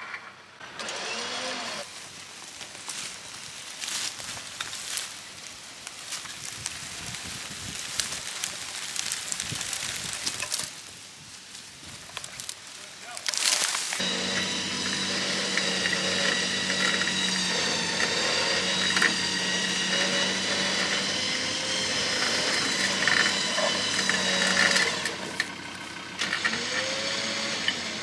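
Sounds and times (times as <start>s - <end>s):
winch motor whining: 0.6s - 1.9s, 14.0s - 28.0s
engine idling: 14.0s - 28.0s.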